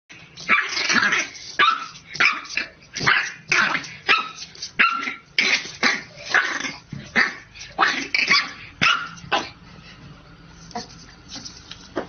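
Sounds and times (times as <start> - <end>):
puppy barking high-pitched: 0.5 - 9.6.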